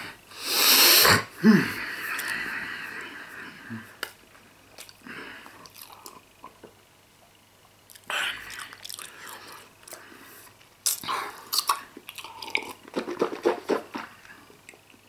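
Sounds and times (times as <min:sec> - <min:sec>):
man chewing and swallowing: 0:04.7 - 0:15.0.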